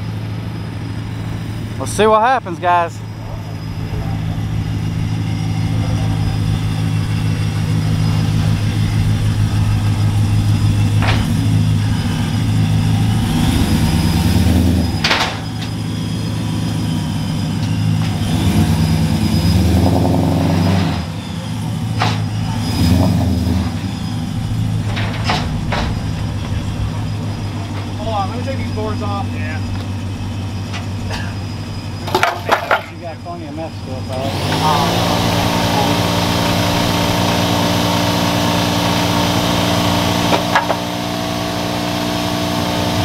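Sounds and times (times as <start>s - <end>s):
engine revving: 0.0s - 43.0s
pickup truck engine idling: 0.0s - 43.0s
sharp knocks: 40.3s - 40.9s.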